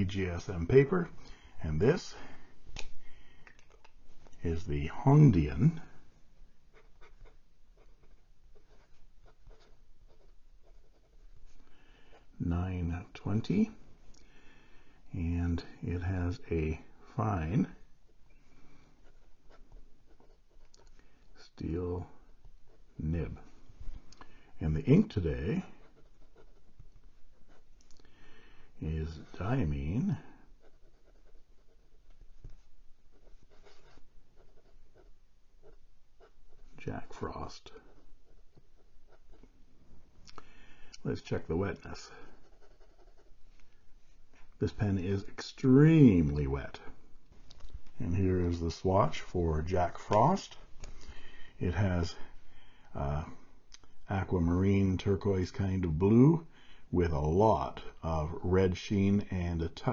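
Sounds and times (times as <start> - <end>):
pen nib scratching on paper: 25.6 - 27.8, 30.5 - 36.8, 42.1 - 43.8.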